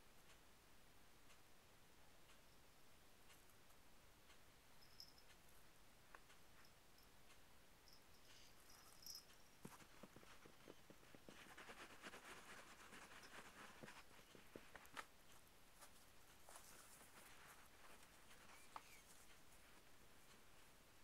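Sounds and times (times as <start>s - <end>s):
soft ticks: 0.0s - 21.0s
faint rustle: 7.9s - 21.0s.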